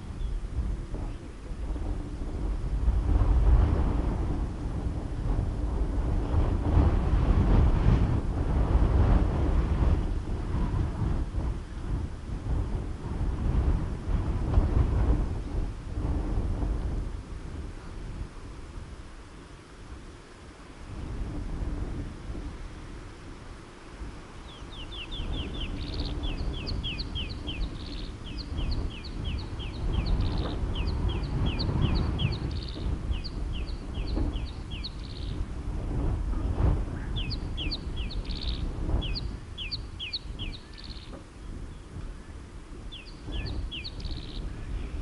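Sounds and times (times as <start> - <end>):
wind on microphone: 0.0 - 45.0
bird chirping high: 24.4 - 35.4, 37.0 - 41.1.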